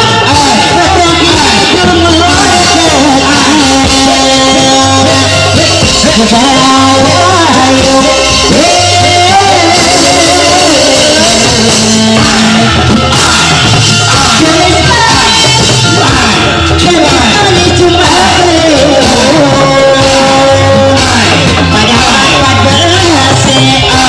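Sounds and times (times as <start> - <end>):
drum and bass pattern: 0.0 - 24.0
music with sung melody: 0.0 - 24.0.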